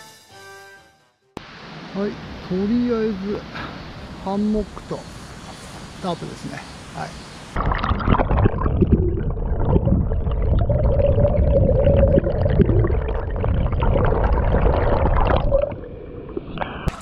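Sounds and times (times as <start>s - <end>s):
water rushing over rocks underwater: 7.6s - 17.0s.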